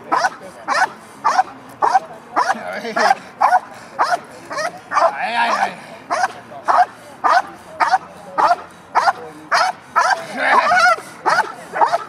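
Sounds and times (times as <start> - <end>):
dog barking: 0.1 - 2.6, 3.4 - 12.0
dog wavering cry: 3.4 - 12.0.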